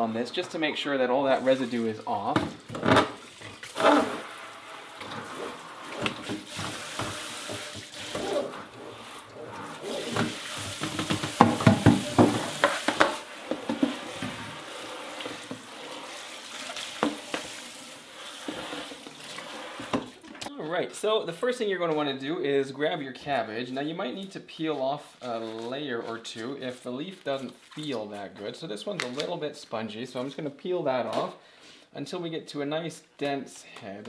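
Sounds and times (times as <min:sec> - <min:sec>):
water splashing and sloshing: 0:01.3 - 0:20.2
plastic bucket knocking: 0:10.0 - 0:14.4
tap running into metal sink: 0:10.1 - 0:14.4.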